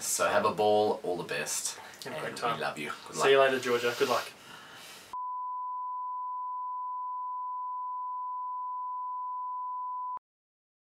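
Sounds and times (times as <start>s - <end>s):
steady test tone beep: 5.2s - 10.2s.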